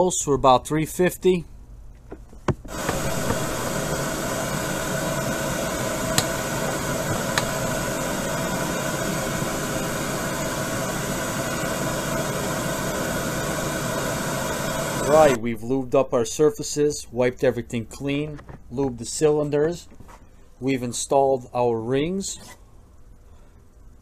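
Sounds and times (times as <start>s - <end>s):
whirring machine noise: 2.5s - 15.4s.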